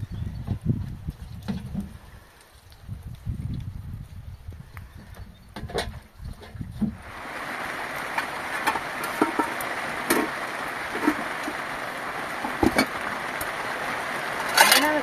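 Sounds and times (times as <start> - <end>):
water rushing: 6.9 - 15.0.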